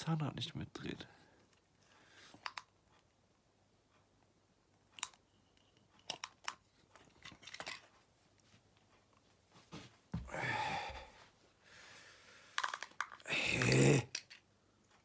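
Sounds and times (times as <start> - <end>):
plastic clicks: 2.4 - 2.7, 4.9 - 7.9, 12.6 - 14.5.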